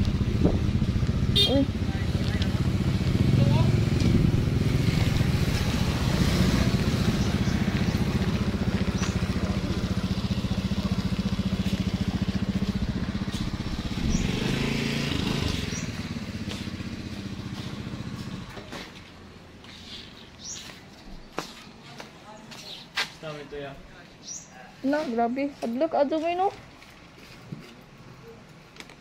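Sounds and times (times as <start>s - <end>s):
motorcycle engine running: 0.0s - 19.4s.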